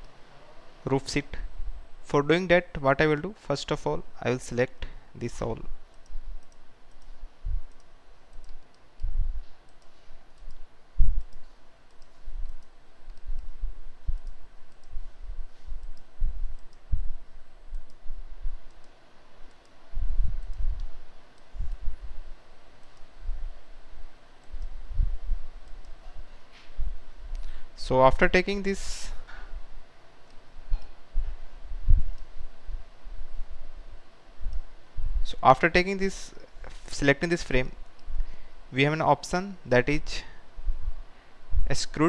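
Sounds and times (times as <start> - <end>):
computer mouse clicking: 5.9 - 10.6, 11.2 - 15.0, 15.7 - 16.9, 17.7 - 18.0, 18.6 - 19.8, 20.4 - 21.9, 22.8 - 23.1, 24.4 - 24.8, 25.6 - 26.0.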